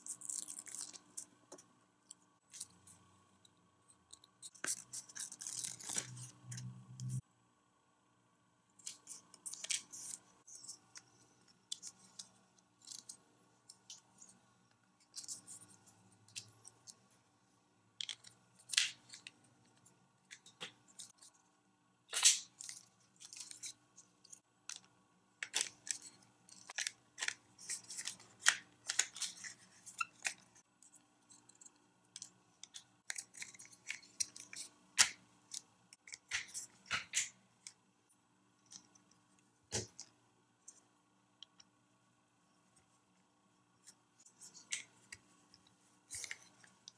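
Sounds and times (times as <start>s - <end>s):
plastic parts clicking and scraping: 8.8s - 17.2s, 18.0s - 21.4s, 22.1s - 37.8s, 43.8s - 46.9s.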